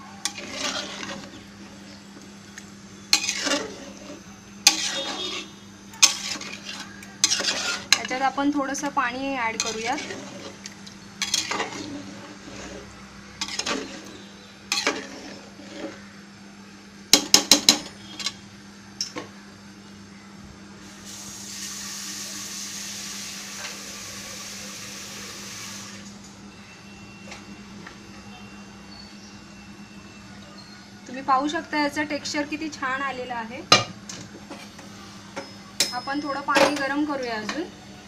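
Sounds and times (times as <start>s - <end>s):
metal spoon scraping a pot: 0.2s - 1.5s, 3.1s - 8.3s, 9.5s - 16.0s.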